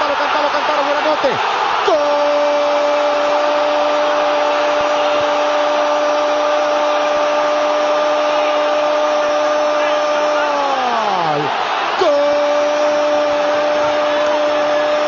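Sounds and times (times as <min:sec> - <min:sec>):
stadium crowd cheering: 0:00.0 - 0:15.0
commentator's long goal cry: 0:05.3 - 0:15.0.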